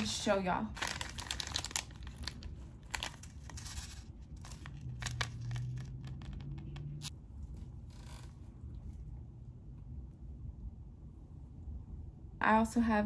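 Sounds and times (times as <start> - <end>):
plastic bag crinkling: 0.0 - 7.1
low steady hum: 0.0 - 13.0.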